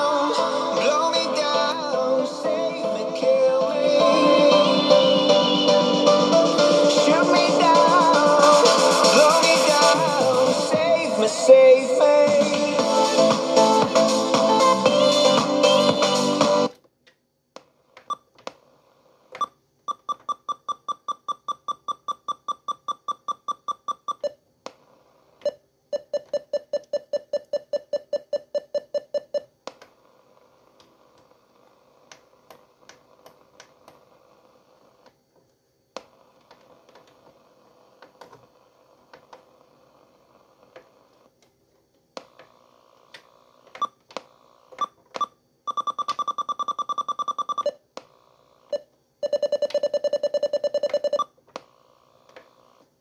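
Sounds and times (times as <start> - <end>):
radio beeping: 48.7 - 51.3.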